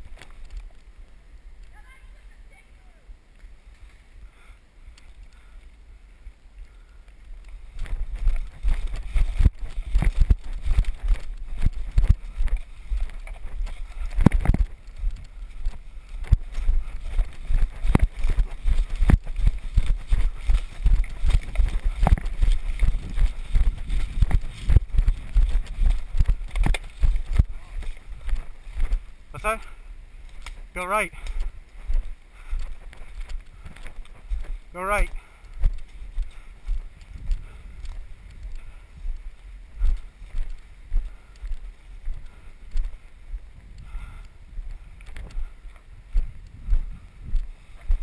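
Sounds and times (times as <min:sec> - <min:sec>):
camera gear bumping microphone: 0:07.7 - 0:29.0
footsteps on leaf litter: 0:07.7 - 0:29.7.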